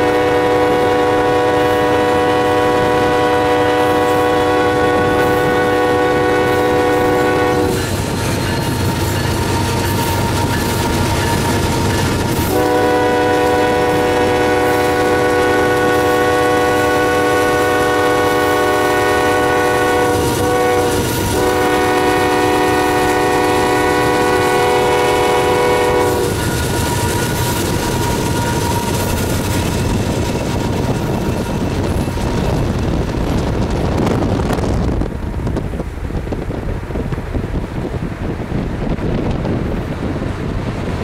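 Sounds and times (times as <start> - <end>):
locomotive air horn blasts: 0.0 - 29.4
train rumbling and clattering: 0.0 - 41.0.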